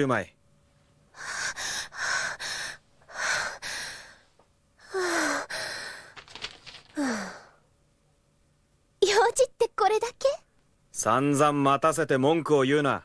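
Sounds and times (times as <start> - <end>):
woman sighing and gasping: 4.8 - 6.2, 6.9 - 7.6.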